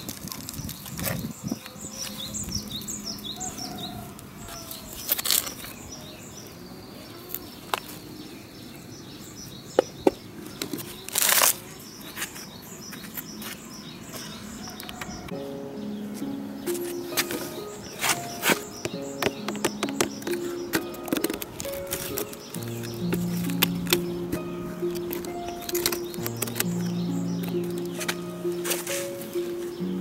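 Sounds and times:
small birds chirping: 0.0s - 30.0s
trowel scraping: 16.7s - 29.7s.

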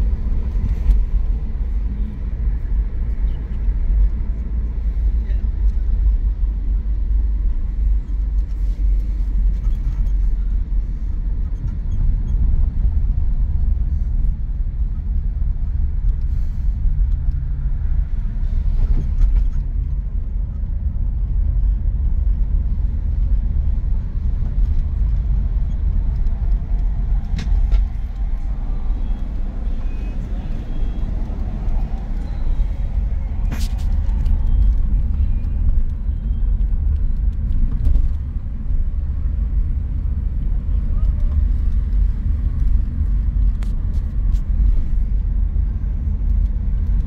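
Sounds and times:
car road and engine rumble: 0.0s - 47.0s.

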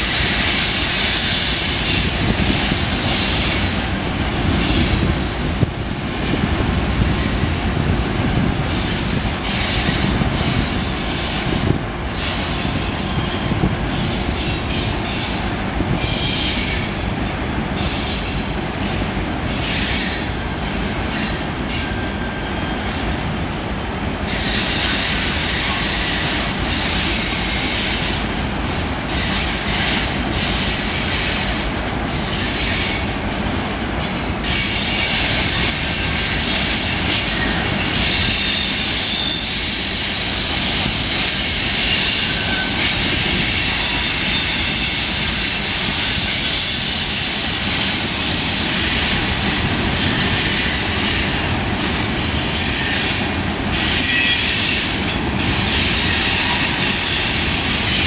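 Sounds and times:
freight train rumbling: 0.0s - 58.0s
steel wheel squeal: 34.4s - 51.6s, 52.2s - 58.0s.

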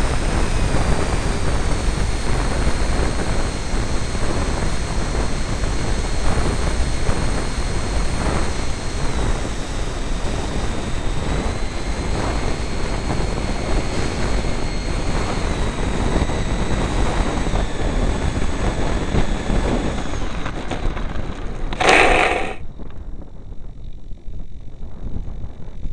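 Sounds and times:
electric ducted fan whine: 21.8s - 22.6s.

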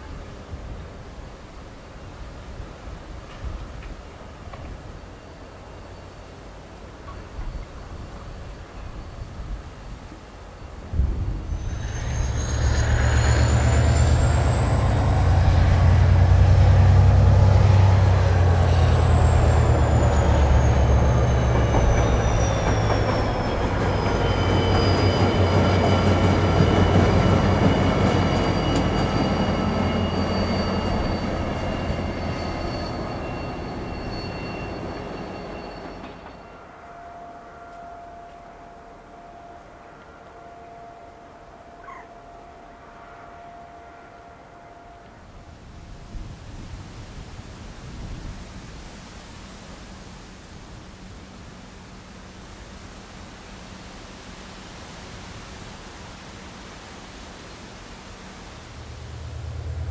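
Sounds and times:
diesel locomotive engine rumble: 2.3s - 36.6s, 57.6s - 59.9s.

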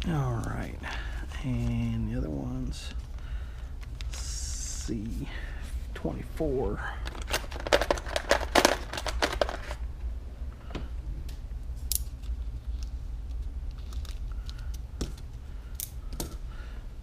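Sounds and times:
low hum: 0.0s - 17.0s
clicks and rustles of plastic bags: 7.0s - 9.8s.

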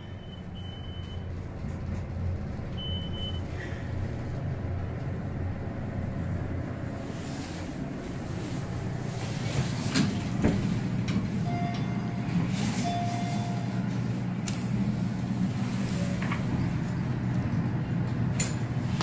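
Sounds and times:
elevator hum: 0.0s - 19.0s.

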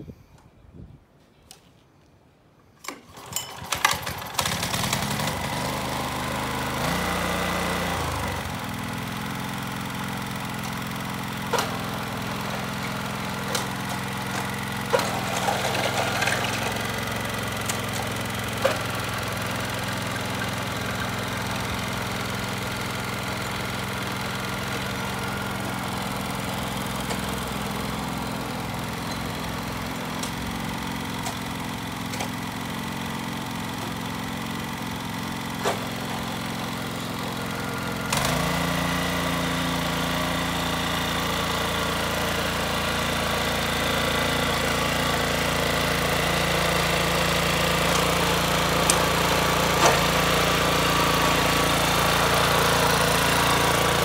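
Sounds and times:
small tiller engine running: 2.9s - 54.0s.

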